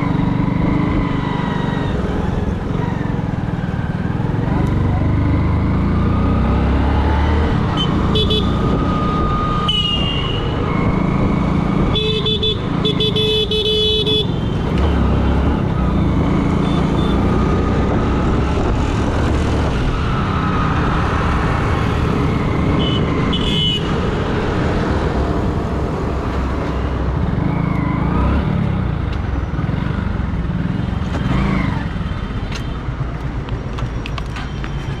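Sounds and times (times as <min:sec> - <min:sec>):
vehicle horns honking: 0:07.7 - 0:08.8, 0:09.6 - 0:10.6, 0:11.9 - 0:14.6, 0:22.8 - 0:23.9.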